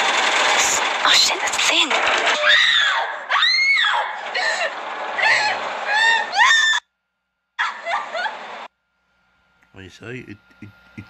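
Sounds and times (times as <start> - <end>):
woman screaming in pain: 7.6 - 8.3.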